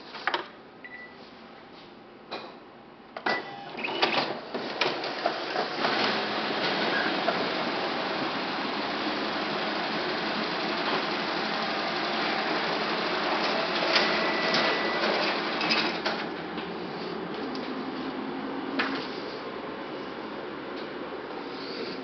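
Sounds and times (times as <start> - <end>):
copier whirring: 3.2 - 22.0
copier clicks: 13.1 - 16.3.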